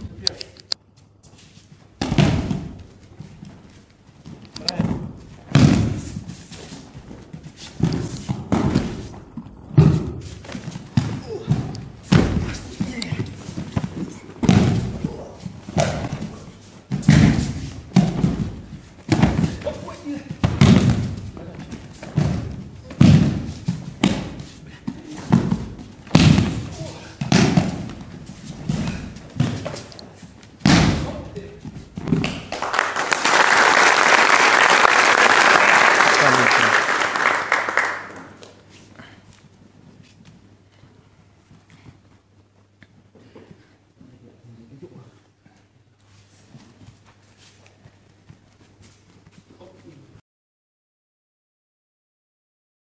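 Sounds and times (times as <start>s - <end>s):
bodies thudding onto foam mats: 1.8s - 32.5s.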